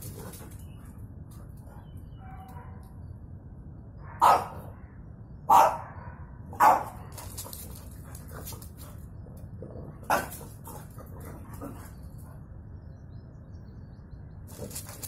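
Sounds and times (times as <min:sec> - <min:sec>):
dog barking: 0:04.1 - 0:04.7, 0:05.5 - 0:07.0, 0:10.1 - 0:10.4.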